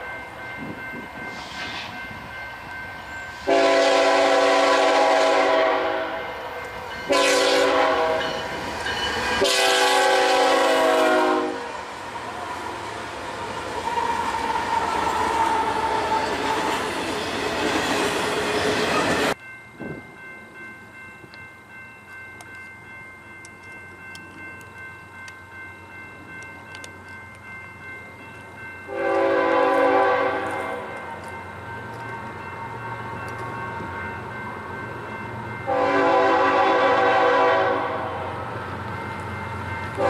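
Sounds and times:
freight train wheels on rails: 0:00.0 - 0:40.0
locomotive horn blast: 0:03.4 - 0:06.4, 0:07.1 - 0:08.4, 0:09.4 - 0:11.8, 0:28.9 - 0:31.0, 0:35.7 - 0:38.4.

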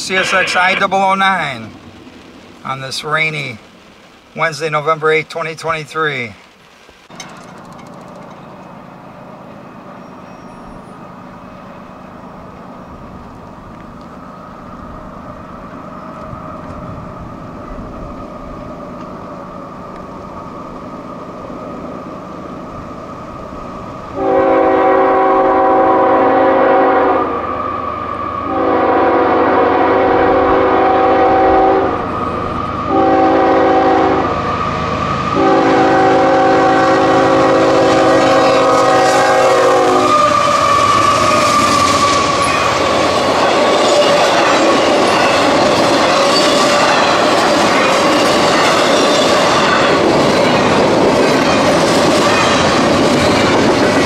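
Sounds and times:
wheels clacking on rails: 0:00.0 - 0:25.5, 0:27.8 - 0:54.0
diesel locomotives rumbling: 0:00.0 - 0:54.0
train air horn: 0:24.2 - 0:27.4, 0:28.5 - 0:32.0, 0:32.9 - 0:34.4, 0:35.4 - 0:42.4.

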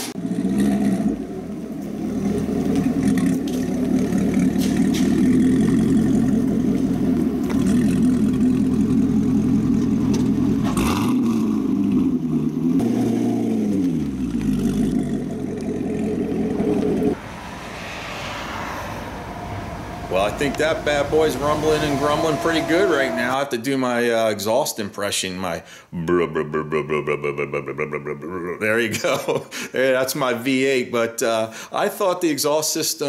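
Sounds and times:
roadside background noise: 0:00.0 - 0:23.5
car engine deep rumble: 0:00.1 - 0:23.3.

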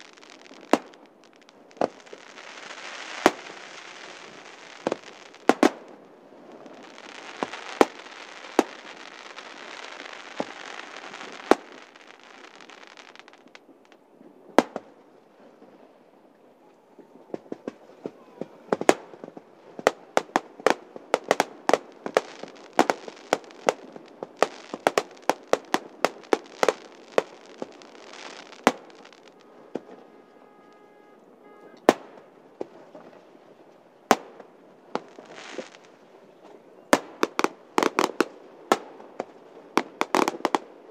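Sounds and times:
fireworks hissing crackle: 0:00.0 - 0:14.0, 0:17.4 - 0:36.0, 0:36.9 - 0:40.9
volley of firework bangs: 0:00.0 - 0:15.0, 0:17.3 - 0:33.1, 0:34.0 - 0:35.9
steady pitched tone: 0:28.9 - 0:31.9.

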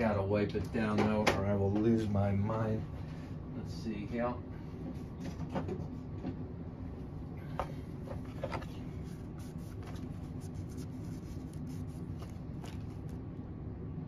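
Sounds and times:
cloth rubbing on knife blade: 0:08.9 - 0:13.0.

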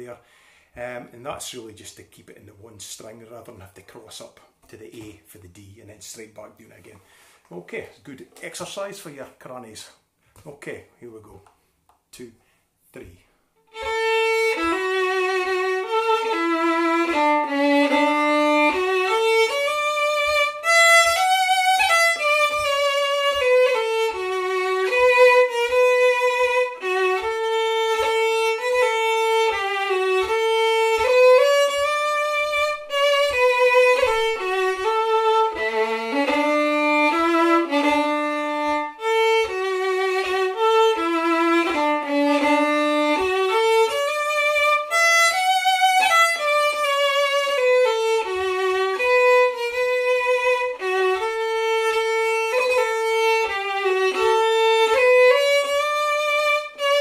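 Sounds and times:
faint low taps: 0:11.3 - 0:12.1
solo fiddle tune: 0:13.6 - 0:57.0.

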